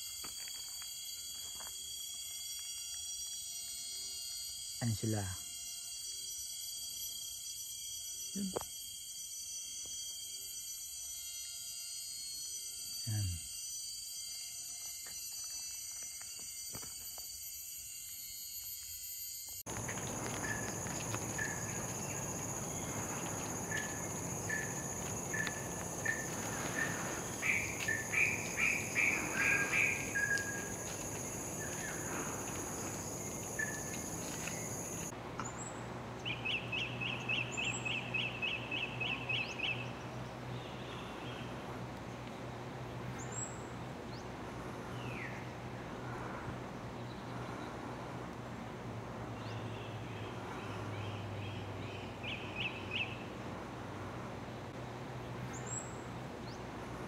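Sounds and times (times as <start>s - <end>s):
high steady buzz: 19.7s - 35.1s
birds calling short notes: 19.8s - 35.1s
bird trill: 19.8s - 40.0s.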